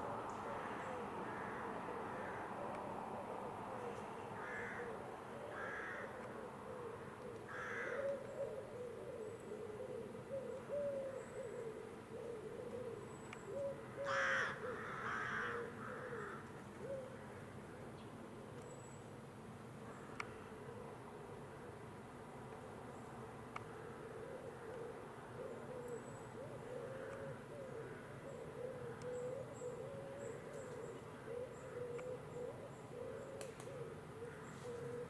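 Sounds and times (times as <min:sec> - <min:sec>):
crows cawing: 0:00.6 - 0:02.6, 0:04.4 - 0:06.3, 0:07.5 - 0:08.2, 0:14.0 - 0:16.5, 0:26.7 - 0:28.2.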